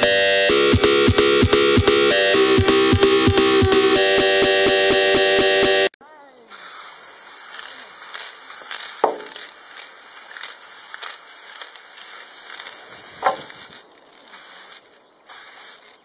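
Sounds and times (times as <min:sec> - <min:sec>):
aerosol spray can hissing: 0:06.5 - 0:16.0.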